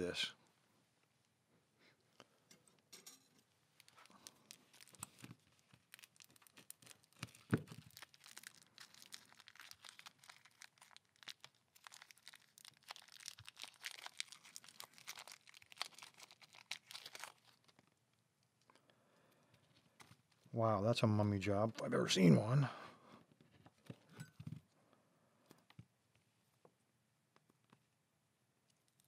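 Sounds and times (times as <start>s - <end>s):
plastic bag crinkling: 3.7s - 18.0s.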